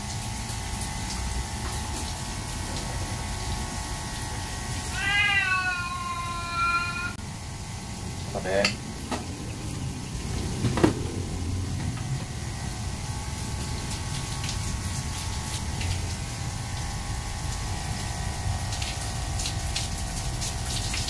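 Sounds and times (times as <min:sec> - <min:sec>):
shower water spraying on fur: 0:00.0 - 0:21.0
cat meowing: 0:04.9 - 0:07.2.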